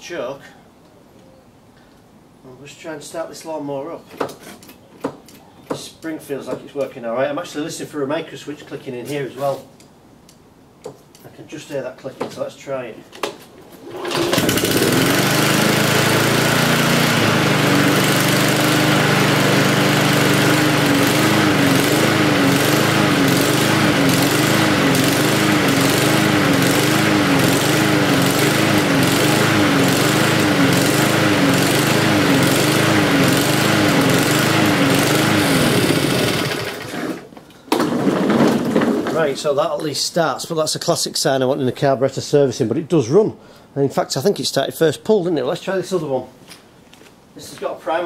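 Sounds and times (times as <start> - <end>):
lawnmower engine surging: 13.8 - 37.3.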